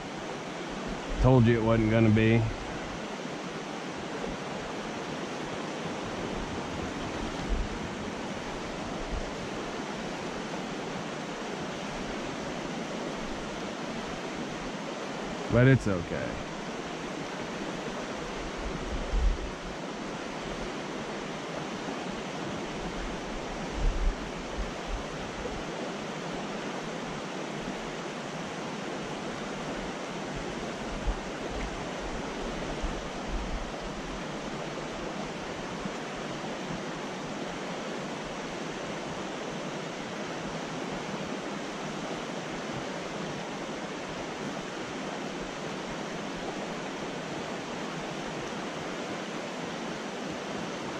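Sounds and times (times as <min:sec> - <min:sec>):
creek water rushing: 0:00.0 - 0:50.9.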